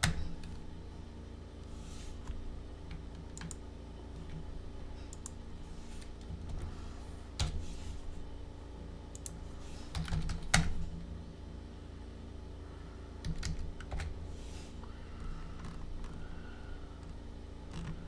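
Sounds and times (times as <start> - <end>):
low steady hum: 0.0 - 18.0
computer keyboard typing: 2.9 - 3.6, 13.2 - 14.1.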